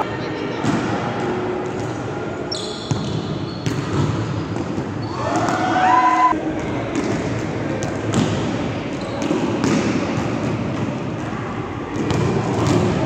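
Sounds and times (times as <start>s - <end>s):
murmur of voices: 0.0s - 2.5s
volleyball slaps and thuds: 9.2s - 10.9s, 12.0s - 13.0s.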